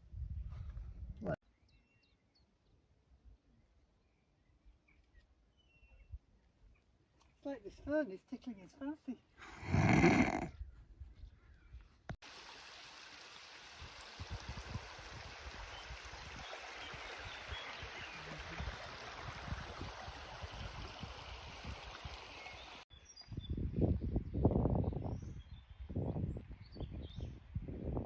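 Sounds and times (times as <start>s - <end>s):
water rushing: 12.2s - 22.8s.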